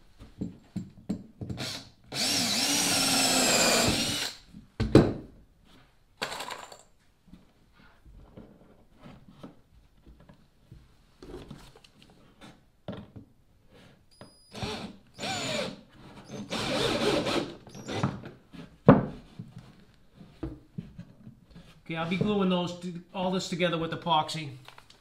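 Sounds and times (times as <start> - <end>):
cordless drill driving screw: 1.6 - 4.4, 14.5 - 18.1.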